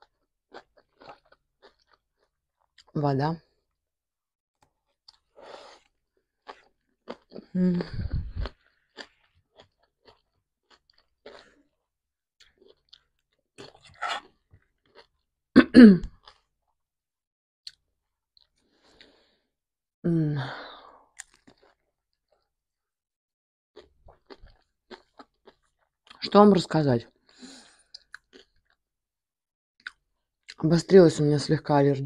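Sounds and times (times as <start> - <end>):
person chewing food: 0.0 - 2.9, 4.6 - 15.3, 16.1 - 16.5, 17.7 - 19.3, 21.1 - 22.5, 23.8 - 26.2, 27.1 - 28.8
short throat sounds: 15.6 - 16.2.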